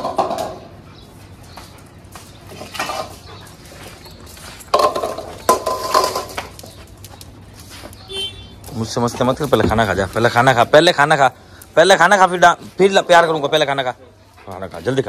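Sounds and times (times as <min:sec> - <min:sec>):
metal bowls clanking on tile floor: 0:04.6 - 0:06.6.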